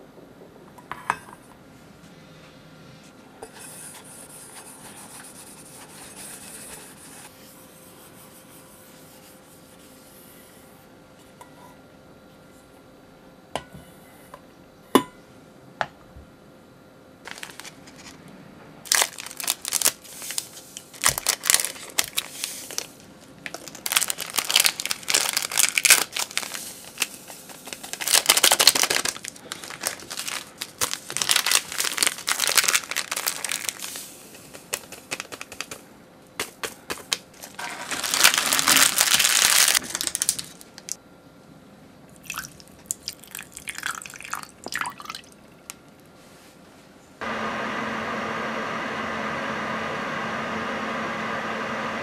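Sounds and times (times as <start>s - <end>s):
plastic sachets crinkling: 17.2s - 18.2s, 18.9s - 35.8s, 36.9s - 41.0s.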